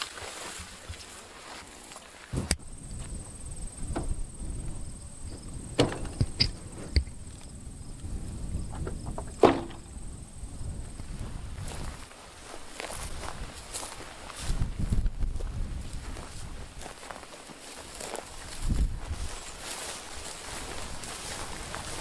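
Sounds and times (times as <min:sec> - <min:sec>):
wind rumbling on microphone: 0:02.3 - 0:17.2, 0:17.8 - 0:22.0
sharp knocks and clicks: 0:05.8 - 0:07.2.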